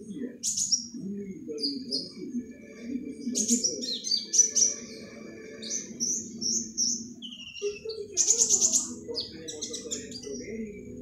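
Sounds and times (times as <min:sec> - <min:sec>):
bird chirping and trilling: 0:00.0 - 0:11.0.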